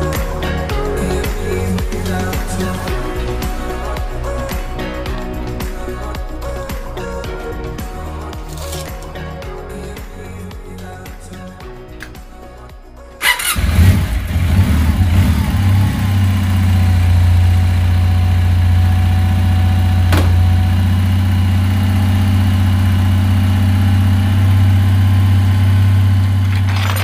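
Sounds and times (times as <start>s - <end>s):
motorcycle engine starting and idling: 13.2s - 27.0s.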